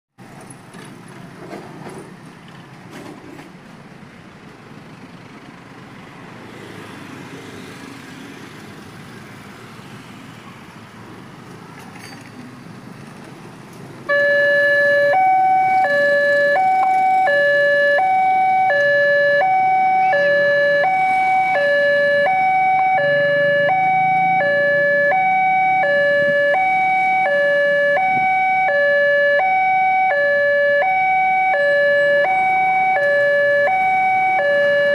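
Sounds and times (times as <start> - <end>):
passing road traffic: 0.2 - 34.9
level crossing alarm: 14.1 - 34.9.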